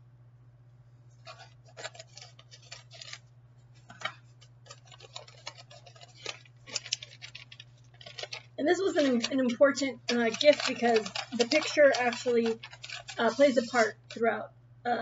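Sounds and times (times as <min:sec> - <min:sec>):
paper crinkling: 0:01.2 - 0:14.3
scissors snipping: 0:04.7 - 0:14.2.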